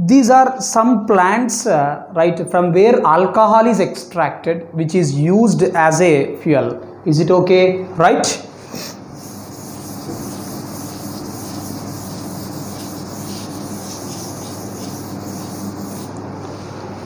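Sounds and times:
duster scrubbing a chalkboard: 9.0s - 17.0s.

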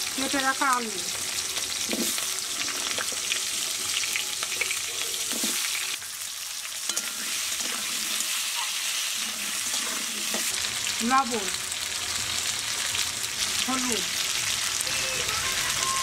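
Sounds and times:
food sizzling in oil: 0.0s - 16.0s
metal spatula scraping pan: 6.8s - 10.6s.

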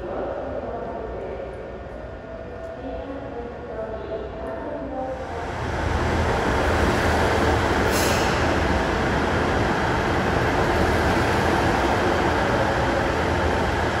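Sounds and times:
train wheels rumbling: 5.2s - 14.0s.

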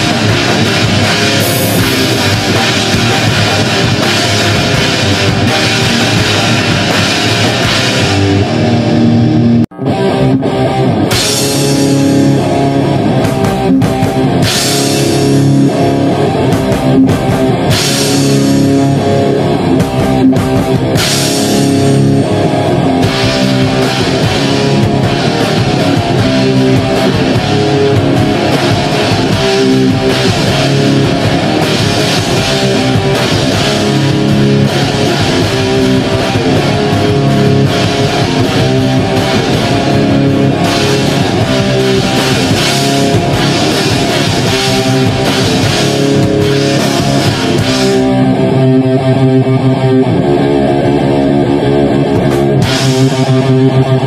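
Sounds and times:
cymbal crashes: 0.0s - 9.1s
drum kit beat: 0.0s - 48.9s, 50.8s - 54.0s
bass guitar: 0.0s - 54.0s
electric guitar: 0.0s - 54.0s.

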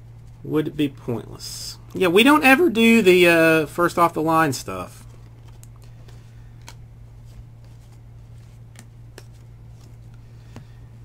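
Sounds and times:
steady low hum: 0.0s - 11.0s
cards sliding through a stack: 5.0s - 10.8s
soft card clicks: 5.1s - 6.8s, 8.7s - 10.7s.

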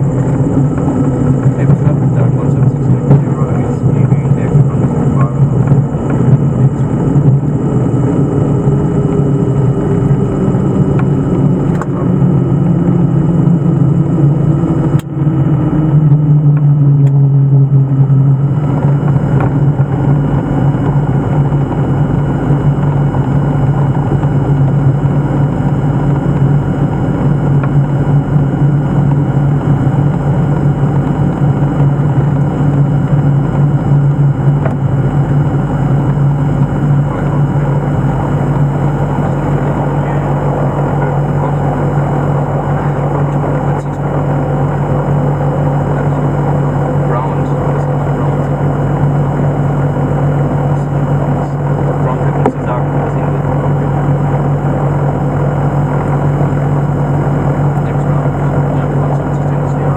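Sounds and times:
aircraft engines droning: 0.0s - 59.9s.

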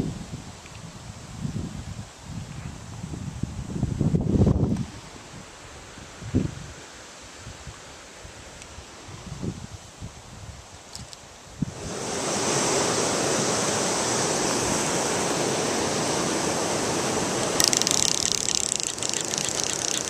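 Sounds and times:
crackling hiss: 10.8s - 20.0s
click: 17.6s - 20.0s.

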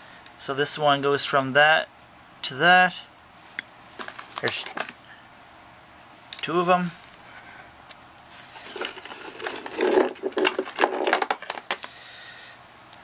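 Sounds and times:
cables and microphones clattering: 8.6s - 11.9s.

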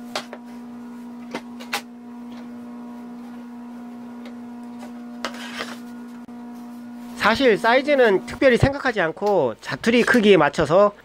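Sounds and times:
steady machine hum: 0.0s - 9.9s
board scraping against fence: 5.2s - 5.9s.

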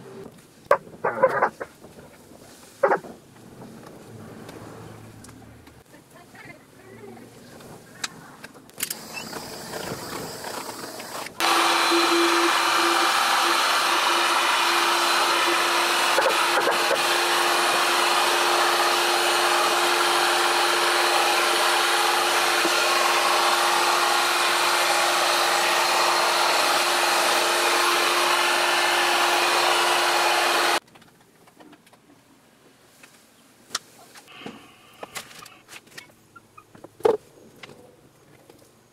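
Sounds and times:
heat gun fan humming: 8.8s - 30.8s.

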